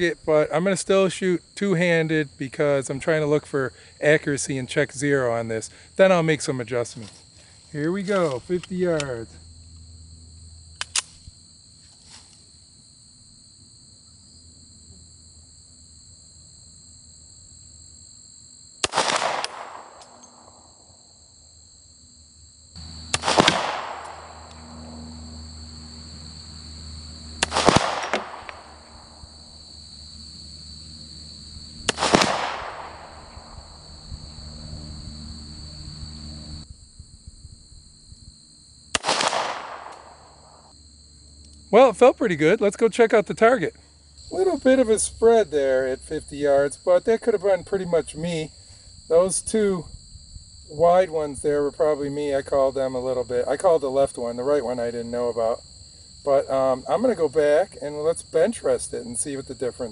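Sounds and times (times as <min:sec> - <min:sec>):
pistol shots with echo: 0:18.8 - 0:20.5, 0:23.1 - 0:24.4, 0:27.4 - 0:28.8, 0:31.9 - 0:33.3, 0:39.0 - 0:40.3.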